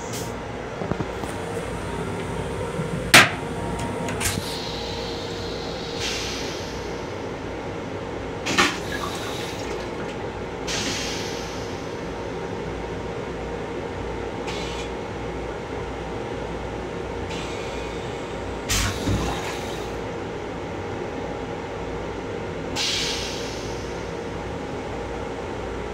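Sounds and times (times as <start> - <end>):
train running hum and rush: 0.0 - 25.9
short hisses: 4.3 - 7.0.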